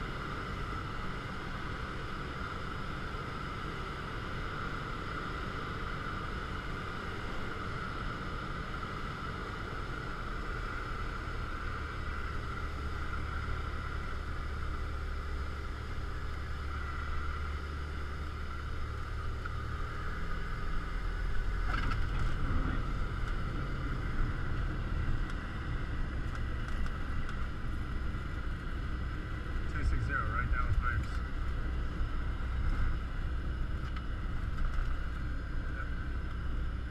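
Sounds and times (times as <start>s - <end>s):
propeller plane engine idling: 0.0s - 36.9s
low rumble: 13.4s - 36.9s.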